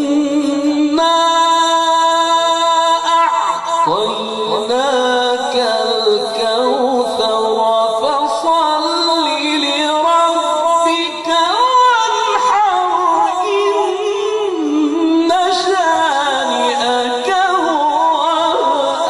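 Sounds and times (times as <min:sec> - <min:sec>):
man reciting melodically: 0:00.0 - 0:19.0.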